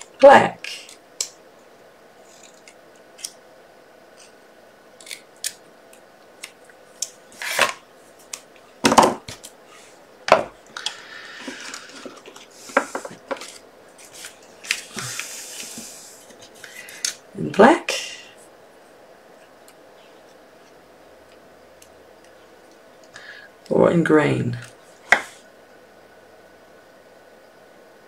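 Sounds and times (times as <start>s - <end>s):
paper rustling: 11.4s - 16.6s.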